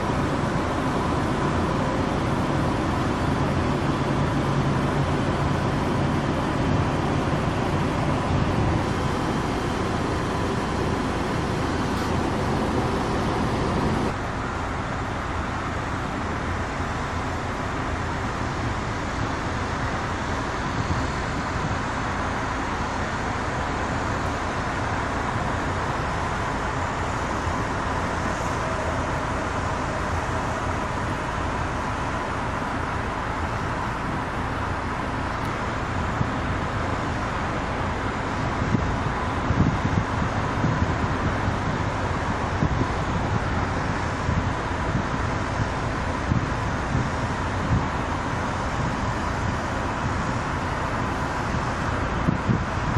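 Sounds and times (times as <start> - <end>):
car tyre and wind road noise: 0.0 - 52.9.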